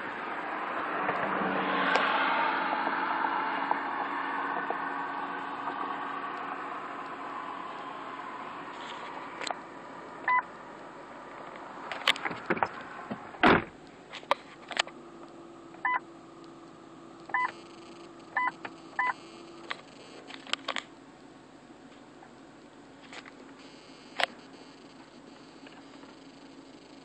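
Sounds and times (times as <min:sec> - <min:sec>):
short electronic beeps: 0:15.8 - 0:16.0, 0:17.3 - 0:20.2, 0:23.6 - 0:27.0.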